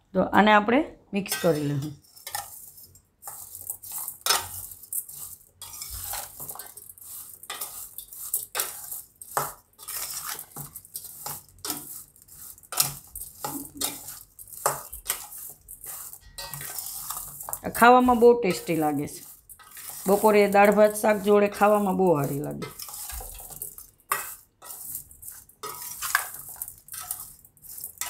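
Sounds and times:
spoon scraping steel bowl: 1.3 - 28.0.

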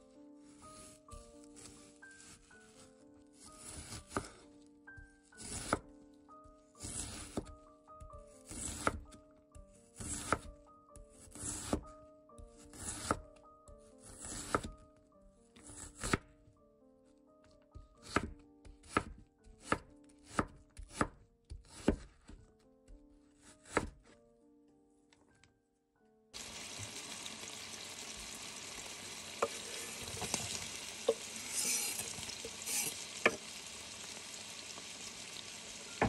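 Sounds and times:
knife slicing onion on cutting board: 3.6 - 4.4, 5.4 - 5.8, 6.8 - 9.2, 10.0 - 10.5, 11.2 - 12.0, 12.6 - 13.2, 14.0 - 14.8, 15.6 - 16.2, 18.0 - 22.4, 23.4 - 24.0, 29.4 - 33.6.

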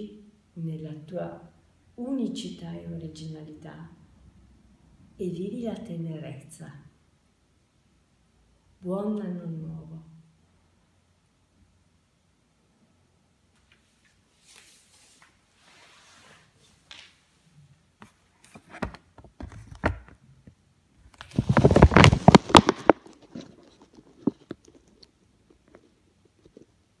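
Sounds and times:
rubbing and tapping: 18.0 - 26.8.

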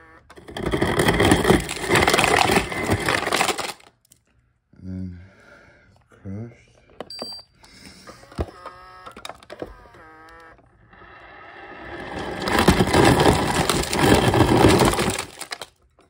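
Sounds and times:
ice dispenser motor humming: 0.0 - 3.9, 8.2 - 15.7
ice cubes clattering into cup: 0.4 - 3.9, 12.1 - 15.7.

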